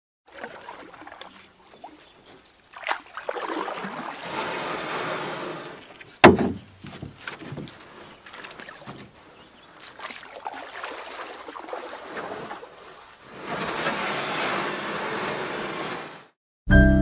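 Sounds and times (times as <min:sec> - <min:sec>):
water splashing around canoe: 0:00.3 - 0:16.3
drips and knocks: 0:06.0 - 0:09.2.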